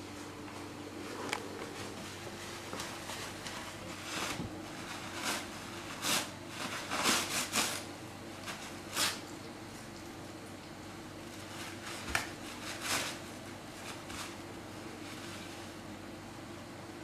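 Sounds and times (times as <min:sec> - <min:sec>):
steady low hum: 0:00.0 - 0:17.0
toilet paper crinkling and tearing: 0:01.5 - 0:09.3, 0:11.2 - 0:15.8.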